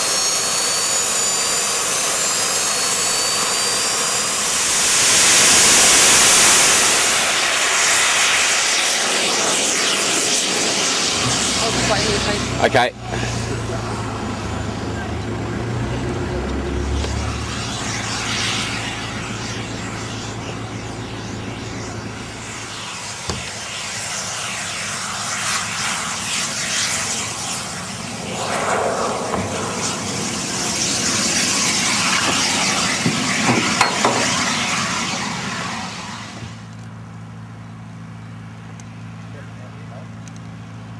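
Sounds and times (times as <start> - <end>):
jet engine go-kart rushing: 0.0 - 36.8.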